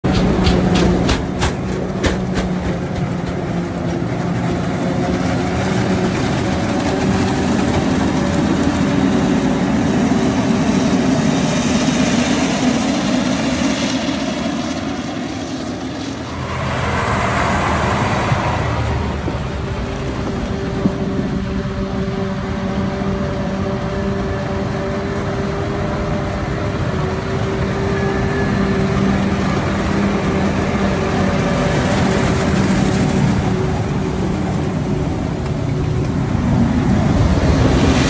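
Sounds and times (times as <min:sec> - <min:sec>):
diesel engines running: 0:00.0 - 0:38.0.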